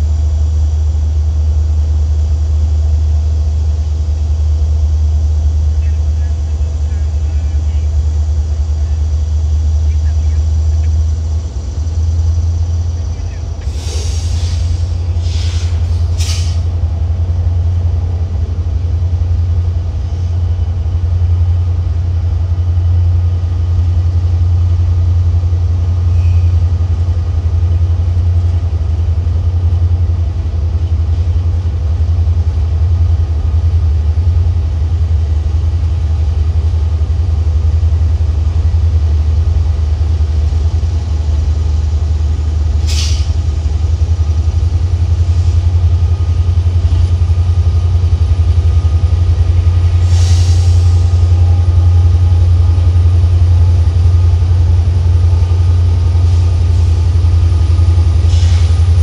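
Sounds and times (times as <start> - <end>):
locomotive diesel engine drone: 0.0 - 59.0
short sharp hiss: 13.6 - 16.7, 42.8 - 43.4, 50.0 - 51.0, 58.3 - 58.8.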